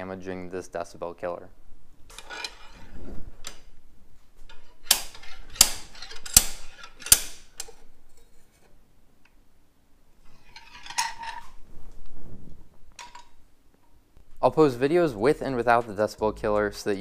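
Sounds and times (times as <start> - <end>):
slide hammer metallic clanks: 4.5 - 7.8.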